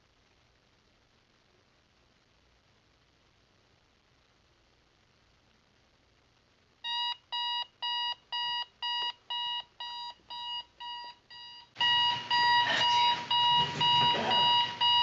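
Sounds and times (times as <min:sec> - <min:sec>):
background noise rush: 0:00.0 - 0:15.0
alarm clock beeping: 0:06.8 - 0:15.0.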